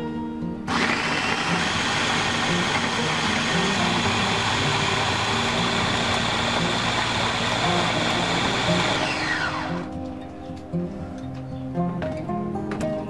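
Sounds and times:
blades chopping tomatoes: 0:00.7 - 0:09.9
food chopper motor whirring: 0:00.7 - 0:09.9.

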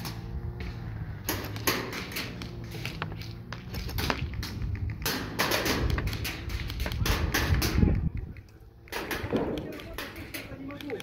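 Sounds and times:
airsoft guns firing: 0:03.6 - 0:11.0.

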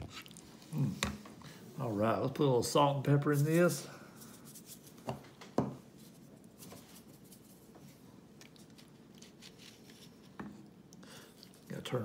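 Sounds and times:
hands rubbing plastic shaker: 0:03.3 - 0:05.0, 0:06.0 - 0:08.0.

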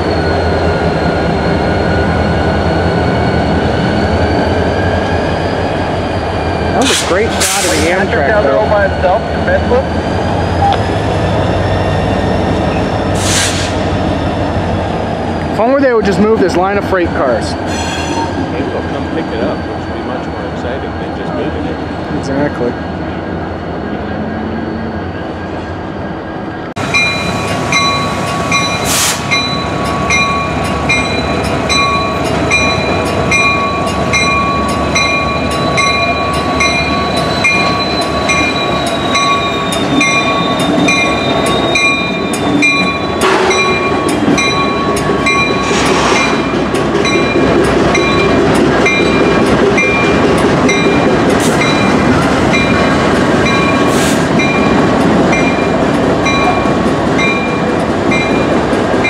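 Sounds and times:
diesel locomotives rumbling past: 0:00.0 - 0:59.0
steady bell ringing: 0:26.9 - 0:58.6.

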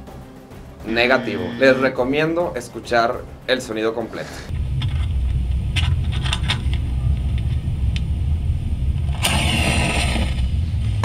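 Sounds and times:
low rumble: 0:04.5 - 0:11.0.

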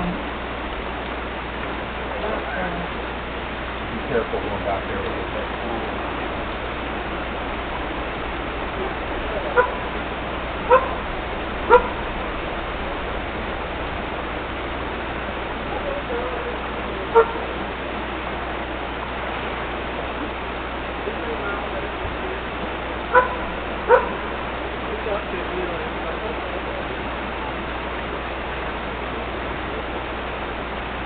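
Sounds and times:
dog barking: 0:09.6 - 0:09.9, 0:10.7 - 0:11.1, 0:11.7 - 0:12.0, 0:17.1 - 0:17.4, 0:23.1 - 0:24.4.

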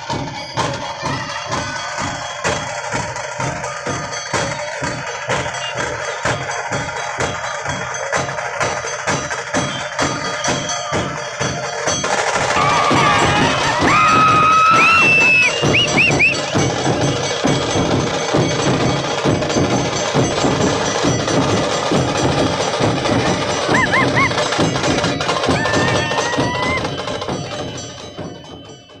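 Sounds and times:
crowd noise: 0:00.0 - 0:28.4
large drums beating fast: 0:00.0 - 0:29.0
high whistle-like notes: 0:12.6 - 0:16.8.

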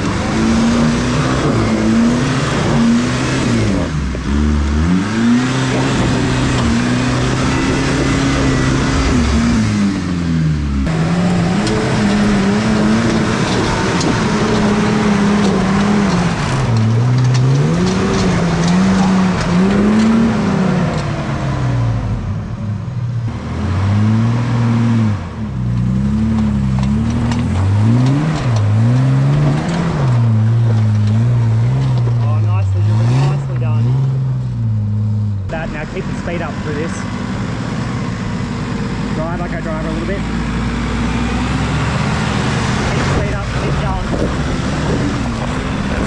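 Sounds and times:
engines revving hard: 0:00.0 - 0:22.4, 0:23.3 - 0:46.0
tyres spinning in dirt: 0:10.9 - 0:21.3, 0:25.8 - 0:34.2, 0:35.5 - 0:46.0.

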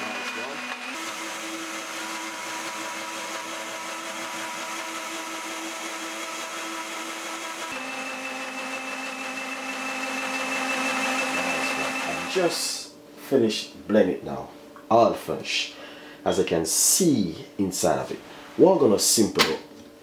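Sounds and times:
blender motor running: 0:00.0 - 0:12.7.

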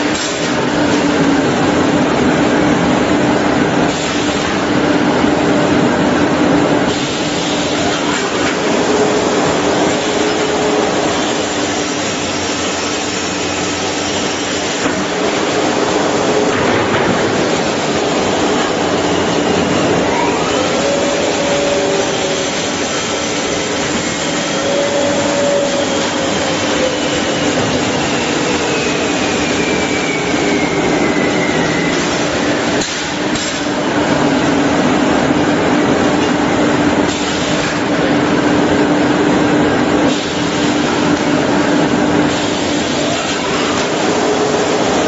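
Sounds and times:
saw machine running: 0:06.0 - 0:45.0
high whine falling in pitch: 0:12.4 - 0:32.8.

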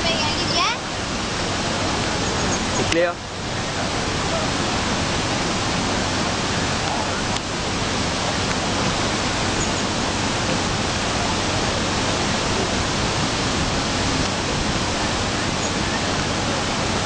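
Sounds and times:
river floodwater rushing: 0:00.0 - 0:17.0.

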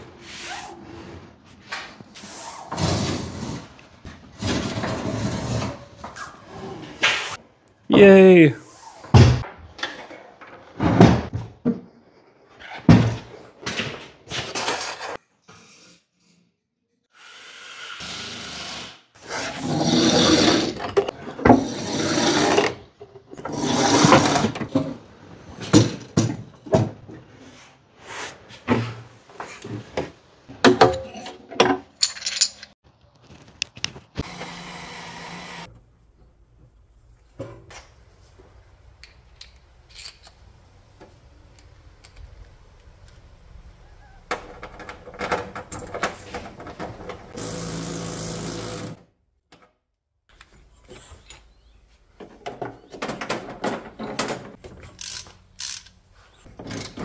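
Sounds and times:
tools knocking and clicking: 0:30.6 - 0:32.7.

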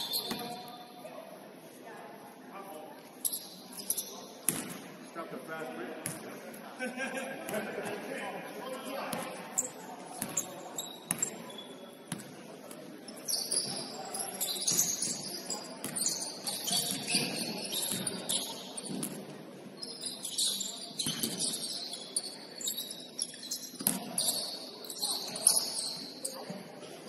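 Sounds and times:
shoes squeaking on court floor: 0:00.0 - 0:01.1, 0:03.1 - 0:05.1, 0:08.7 - 0:27.0.

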